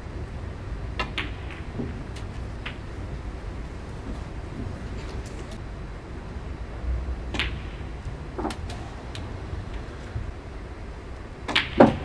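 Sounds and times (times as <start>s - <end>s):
cue tip striking ball: 1.0s - 2.9s, 11.5s - 12.0s
snooker balls clacking: 1.0s - 2.9s, 11.5s - 12.0s.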